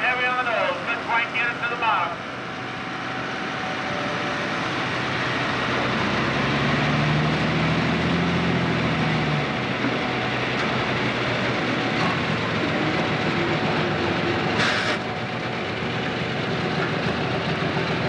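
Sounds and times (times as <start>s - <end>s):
diesel engine under heavy load: 0.0s - 18.0s.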